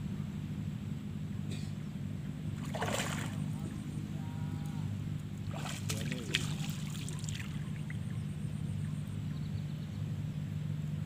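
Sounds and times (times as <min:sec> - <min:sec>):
steady low hum: 0:00.0 - 0:11.0
water splashing and trickling: 0:02.6 - 0:03.9, 0:05.4 - 0:08.2.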